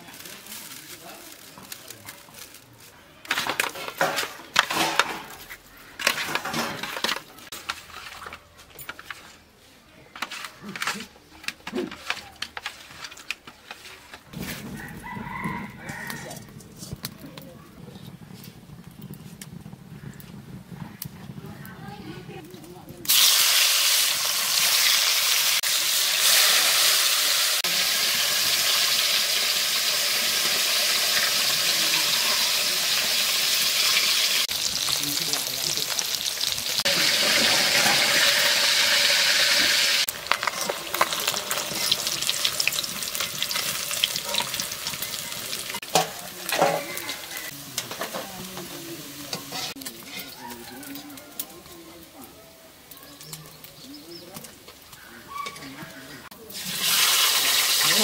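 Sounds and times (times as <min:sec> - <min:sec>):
food sizzling in oil: 0:23.1 - 0:55.0, 0:56.2 - 0:58.0.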